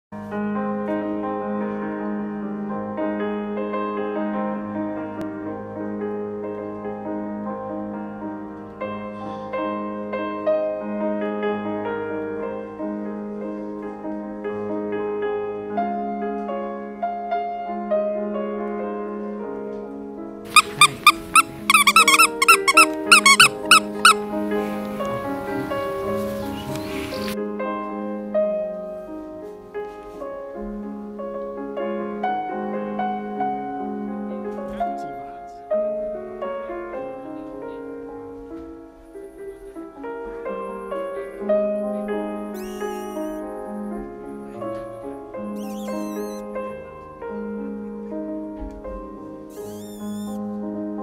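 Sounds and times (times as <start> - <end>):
piano music: 0.2 - 51.0
squeaky toy squeaking: 20.5 - 24.2, 42.6 - 43.4, 45.6 - 46.5, 49.5 - 50.4.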